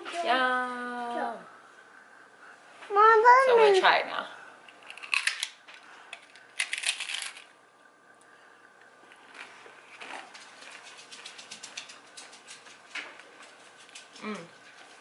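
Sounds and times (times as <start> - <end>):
crunchy chewing: 4.7 - 7.4
crunchy bite into taco shell: 4.8 - 5.6.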